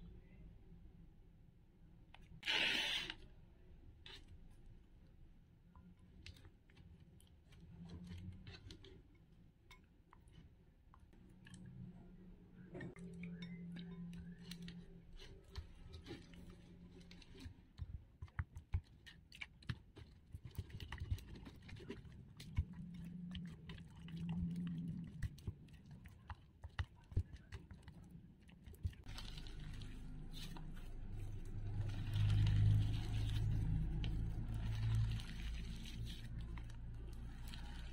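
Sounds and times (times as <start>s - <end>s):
slime stirred with sticky clicks: 4.0s - 12.0s, 12.6s - 37.9s
spatula scraping glass bowl: 12.9s - 17.5s, 29.0s - 37.9s.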